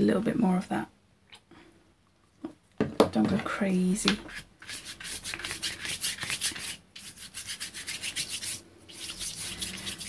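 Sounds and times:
paintbrush scrubbing on card: 4.2s - 10.0s.

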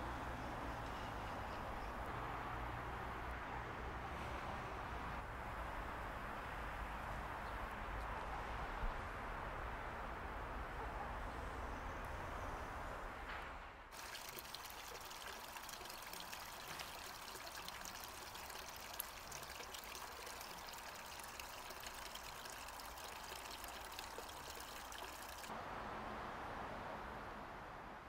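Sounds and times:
fine splashes and drips: 13.9s - 25.5s
stream trickling over rocks: 13.9s - 25.5s.

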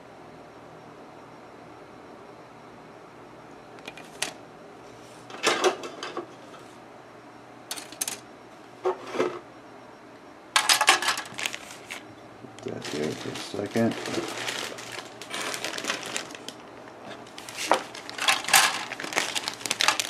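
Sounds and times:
plastic pieces clattering: 10.6s - 11.6s, 12.7s - 16.6s, 17.4s - 20.0s.

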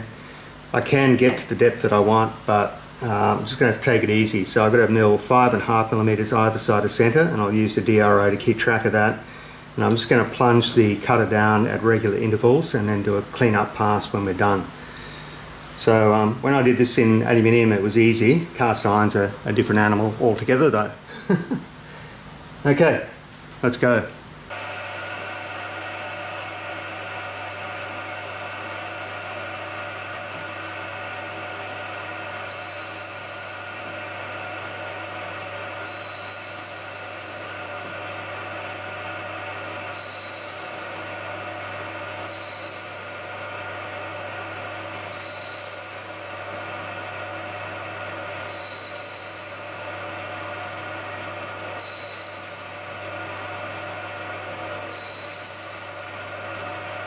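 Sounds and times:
milling machine spindle running: 24.5s - 57.0s
high rising cutter squeal: 32.4s - 34.0s, 35.8s - 38.0s, 39.9s - 41.2s, 42.2s - 43.6s, 45.1s - 46.6s, 48.4s - 49.9s, 51.8s - 53.1s, 54.9s - 56.5s.

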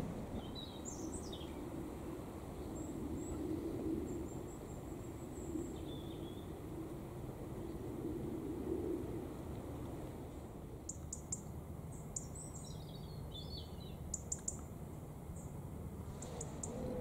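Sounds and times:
small birds chirping: 0.0s - 1.6s, 4.1s - 6.6s, 10.3s - 17.0s.

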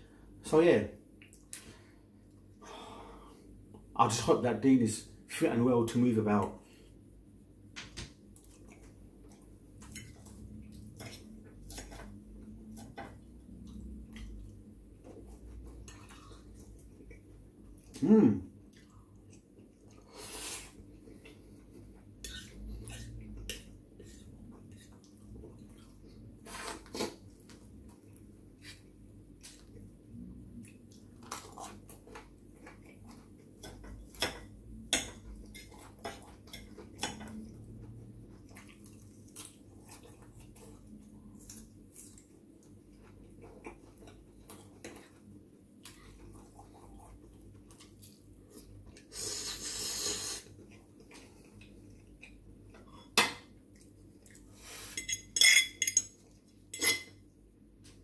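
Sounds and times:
chewing and slurping: 18.7s - 34.2s, 35.3s - 53.0s
fork clinking on ceramic plate: 55.0s - 56.2s, 56.8s - 57.2s.

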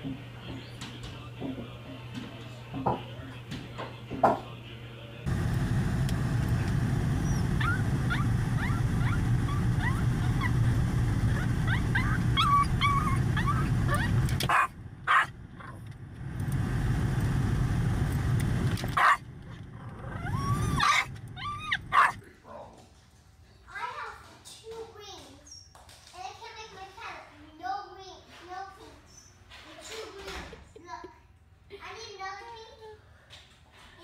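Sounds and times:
car cabin rumble: 5.3s - 14.6s
small dog whimpering and yipping: 7.2s - 10.6s, 11.2s - 15.3s, 20.0s - 22.2s.

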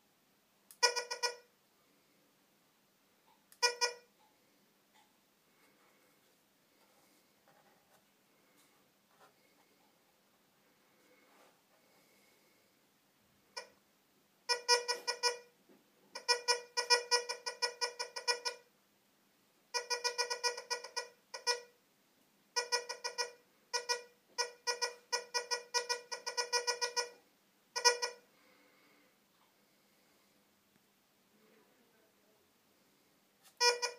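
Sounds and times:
metal detector stuttering beeps: 0.8s - 1.4s, 3.6s - 4.0s, 14.5s - 15.5s, 16.2s - 18.6s, 19.8s - 21.7s, 22.6s - 27.2s, 27.8s - 28.2s, 33.6s - 33.9s.

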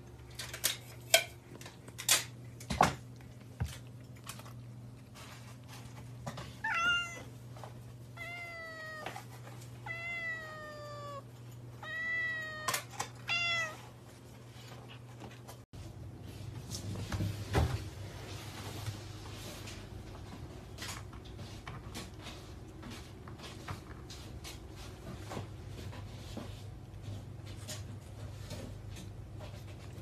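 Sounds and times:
cat meowing: 6.6s - 7.3s, 8.2s - 9.2s, 9.8s - 13.8s.

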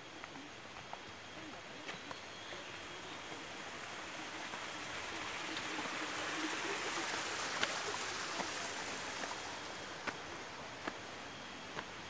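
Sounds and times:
stream water flowing: 2.5s - 12.0s.

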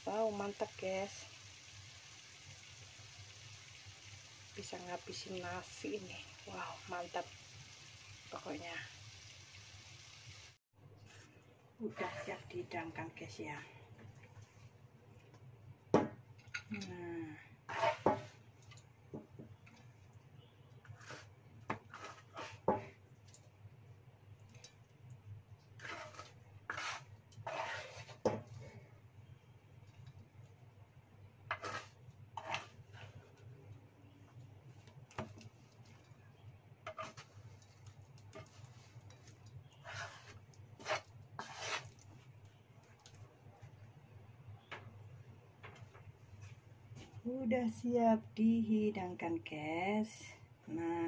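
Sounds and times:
metal spatula scraping a wok: 11.8s - 12.6s, 17.7s - 18.4s, 20.9s - 22.8s, 25.8s - 28.8s, 31.5s - 33.3s, 36.8s - 42.0s.

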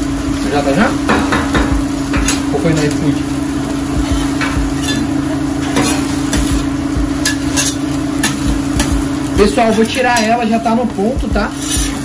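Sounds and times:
low steady hum: 0.0s - 12.0s
onions sizzling in a frying pan: 0.0s - 12.0s
spoon scraping and knocking pan: 1.0s - 2.5s, 4.1s - 9.1s.

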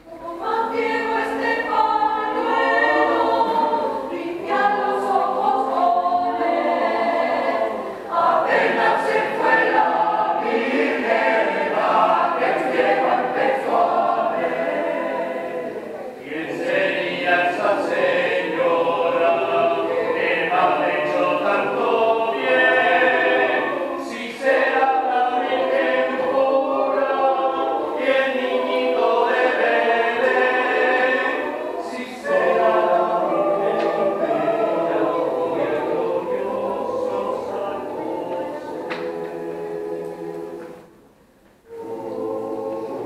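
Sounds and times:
choir singing a cappella: 0.0s - 43.0s.

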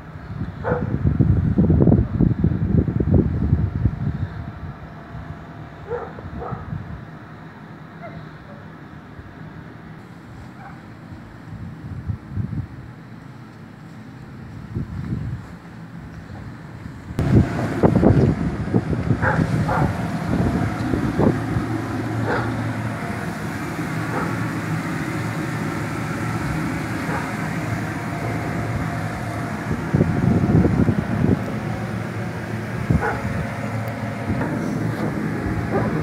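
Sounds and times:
inflation blower humming: 17.2s - 36.0s.

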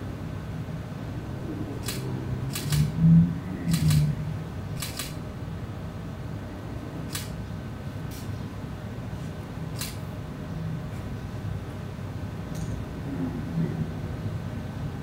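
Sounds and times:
camera shutter clicking: 1.8s - 2.9s, 3.7s - 4.1s, 4.8s - 5.2s, 7.1s - 7.4s, 9.8s - 10.0s.

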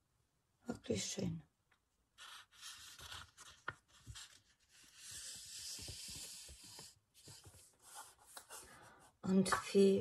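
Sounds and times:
paper rustling: 2.2s - 8.7s
paper sliding hiss: 4.1s - 7.4s.

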